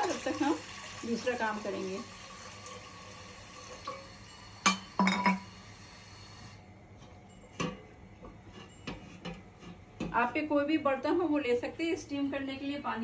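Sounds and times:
glass bottle clinking: 4.3s - 5.5s.

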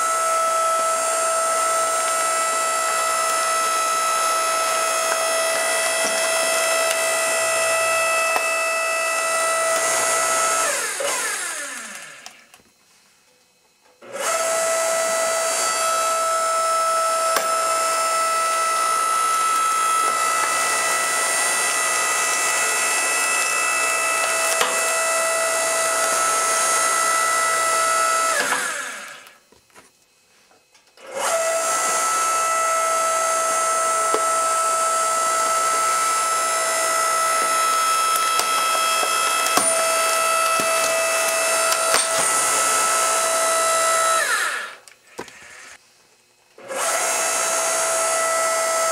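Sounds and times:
log splitter motor whining: 0.0s - 12.6s, 14.0s - 29.5s, 31.0s - 45.8s, 46.6s - 48.9s.

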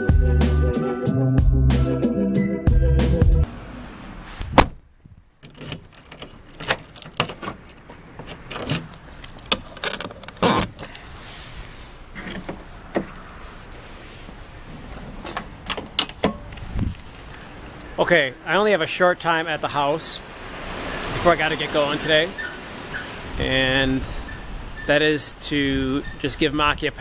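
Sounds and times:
car door shutting: 4.4s - 4.8s.

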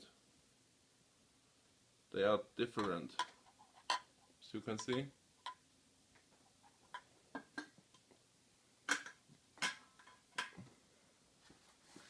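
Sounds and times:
light taps of cans: 4.7s - 5.6s, 6.9s - 8.1s.

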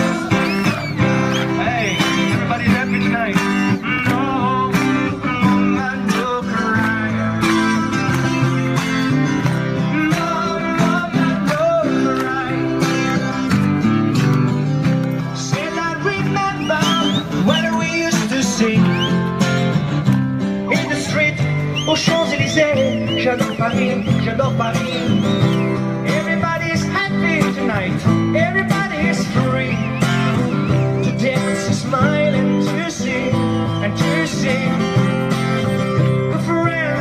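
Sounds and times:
acoustic guitar strumming: 0.0s - 37.0s.

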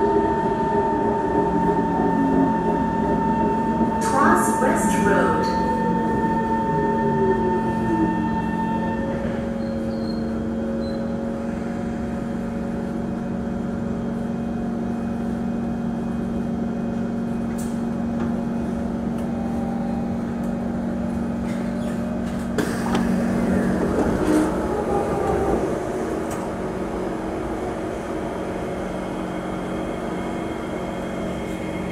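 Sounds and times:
train equipment humming: 0.0s - 31.9s
train doors sliding open: 20.4s - 27.2s.

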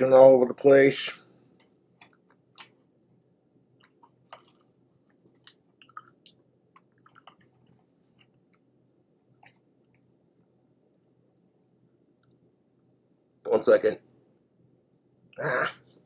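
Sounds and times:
food handling clicks and crackles: 1.5s - 8.7s
man chewing: 1.5s - 10.1s.

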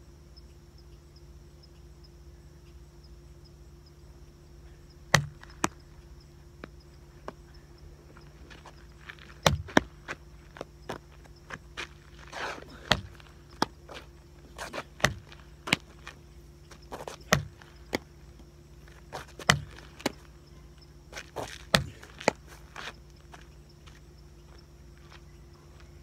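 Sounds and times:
footsteps on asphalt: 5.1s - 26.0s.

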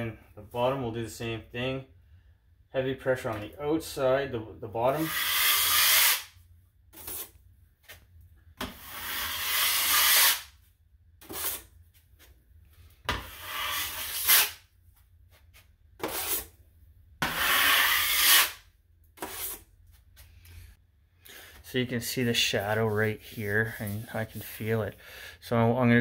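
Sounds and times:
taping knife scraping compound: 4.9s - 8.0s, 8.6s - 10.6s, 11.2s - 11.8s, 13.1s - 14.7s, 15.3s - 16.6s, 17.2s - 20.3s.

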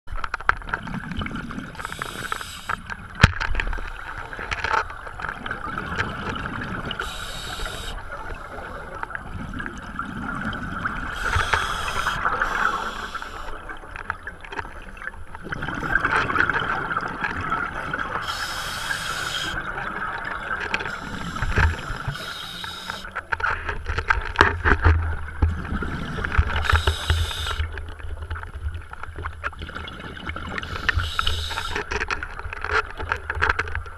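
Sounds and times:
underwater bubbling: 0.1s - 33.9s
regulator breath hiss: 1.8s - 2.8s, 7.0s - 8.7s, 11.1s - 13.6s, 18.2s - 19.6s, 20.9s - 23.1s, 26.6s - 27.7s, 30.6s - 31.8s.

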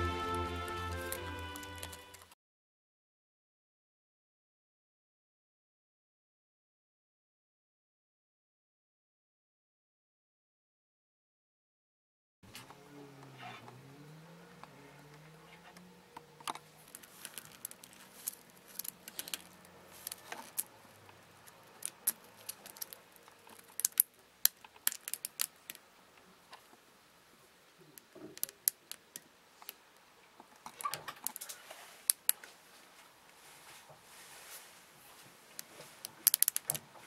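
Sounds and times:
beetle shells clicking and scraping: 0.8s - 2.3s, 16.2s - 25.8s, 27.8s - 32.5s, 35.5s - 37.0s.

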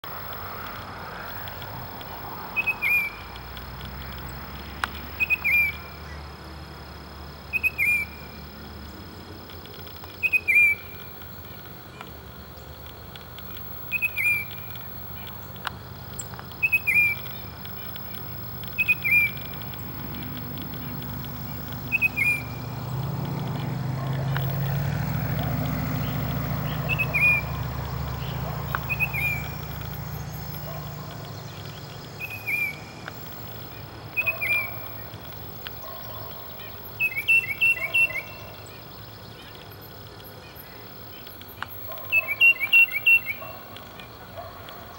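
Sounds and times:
bird whistled calls: 2.5s - 3.3s, 5.2s - 6.0s, 7.5s - 8.4s, 10.2s - 11.1s, 13.6s - 15.4s, 16.6s - 22.7s, 24.3s - 38.8s, 41.7s - 43.7s.

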